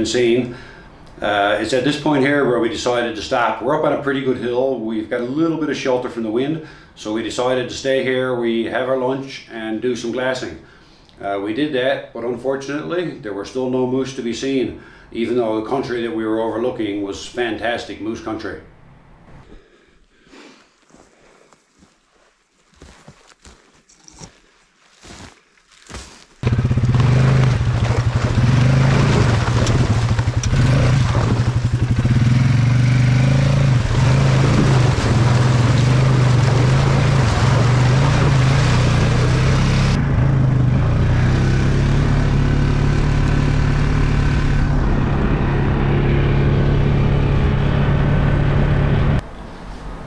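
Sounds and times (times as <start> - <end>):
faint footsteps: 20.6 - 26.5
quad bike engine running: 26.4 - 49.2.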